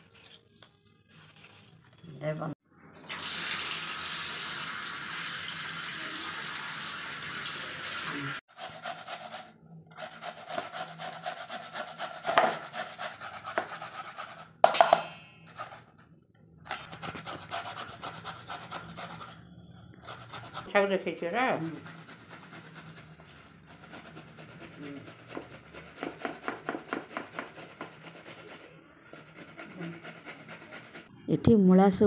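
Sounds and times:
tap water running into colander: 3.0s - 8.4s.

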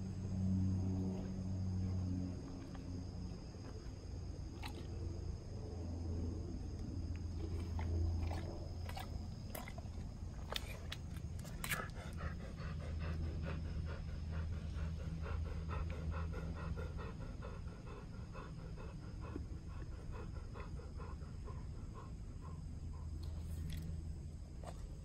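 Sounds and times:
dog panting: 7.4s - 23.9s.

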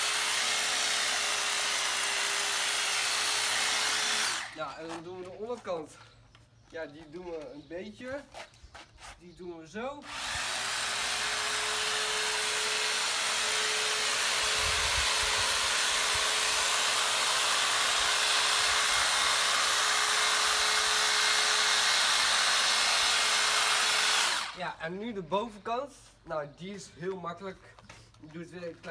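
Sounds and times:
electric hedge trimmer running: 0.0s - 5.0s, 10.0s - 24.6s.

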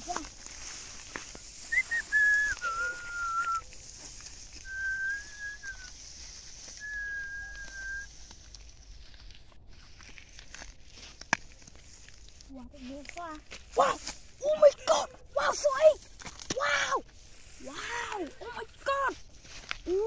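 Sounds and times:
person whistling long notes: 1.7s - 3.7s, 4.6s - 6.0s, 6.7s - 8.1s.

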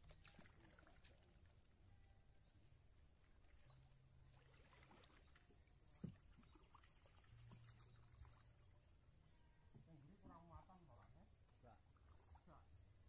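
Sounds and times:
paddle splashing water: 0.0s - 1.5s, 3.2s - 8.5s.

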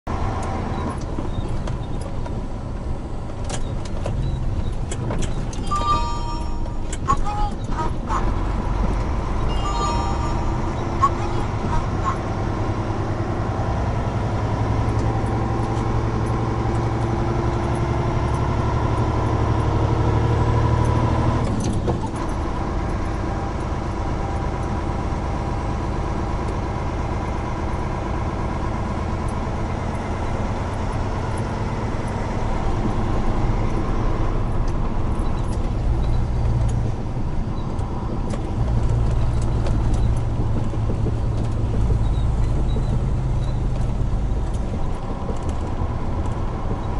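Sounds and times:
road noise: 0.0s - 46.9s
truck diesel engine running: 0.1s - 46.9s.

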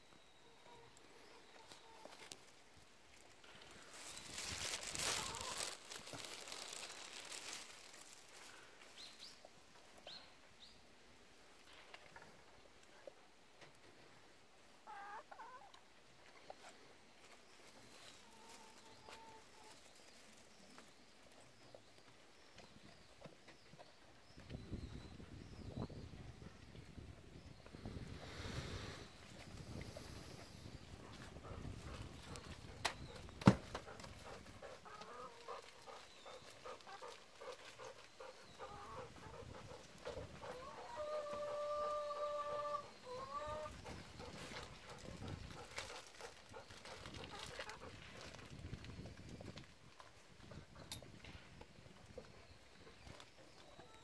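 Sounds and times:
hen clucking: 5.0s - 6.0s, 14.8s - 15.8s, 33.8s - 45.6s.

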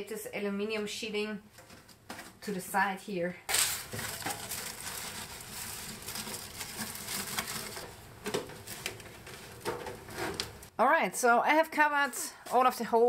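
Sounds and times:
aluminium foil crinkling: 3.5s - 10.7s.

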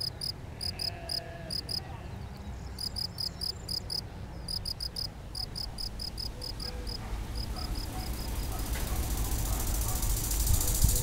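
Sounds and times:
cricket chirping: 0.0s - 1.8s, 2.8s - 8.4s.

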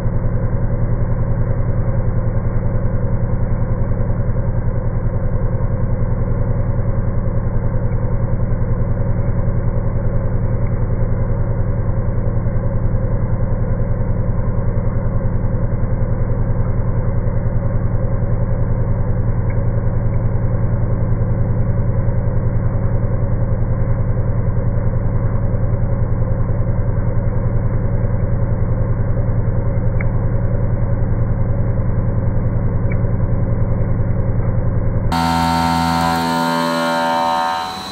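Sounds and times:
low muffled milling drone: 27.2s - 37.9s
bright pitched tones: 35.1s - 37.9s.

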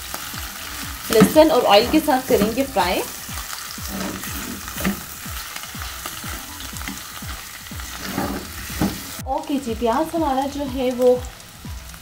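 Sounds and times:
food sizzling in hot oil: 0.0s - 12.0s
spatula stirring in pan: 0.7s - 9.2s.

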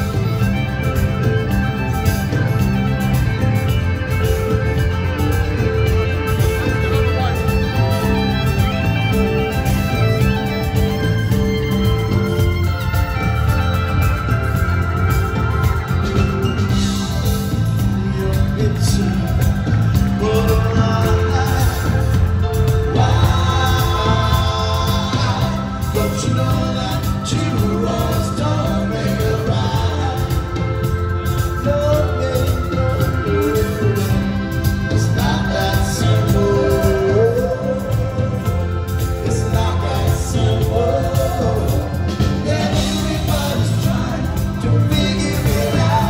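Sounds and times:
live band playing: 0.0s - 46.0s
man singing: 15.0s - 46.0s.

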